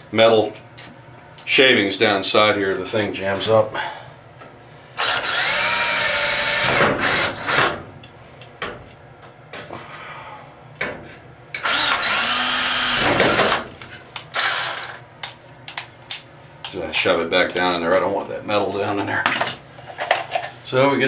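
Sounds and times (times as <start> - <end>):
cordless drill boring into steel: 5.0 - 7.5, 11.6 - 13.0, 14.4 - 15.0.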